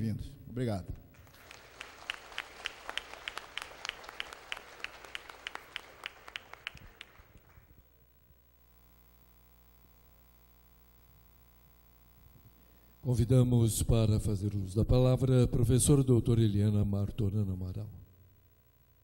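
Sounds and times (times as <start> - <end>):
faint steady hum: 0.0 - 19.0
audience applauding: 1.2 - 7.8.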